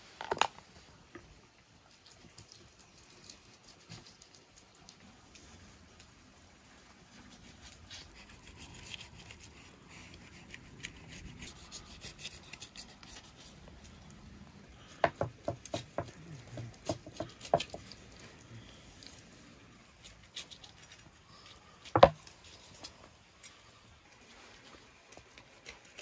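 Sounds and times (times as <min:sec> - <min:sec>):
knife scraping fish skin: 0:10.2 - 0:13.6, 0:15.1 - 0:18.0.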